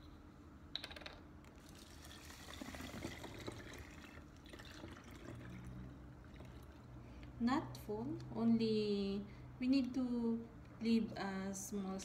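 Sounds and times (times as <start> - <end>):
water pouring through funnel into bottle: 1.6 - 7.0.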